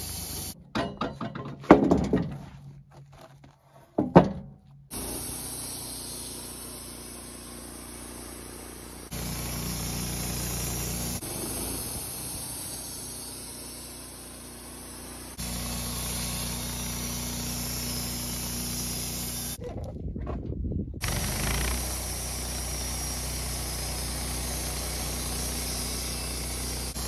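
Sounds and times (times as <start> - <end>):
band sawmill cutting log: 0.0 - 0.6, 4.9 - 19.6, 21.0 - 27.0
heavy wooden thunks: 0.6 - 4.7.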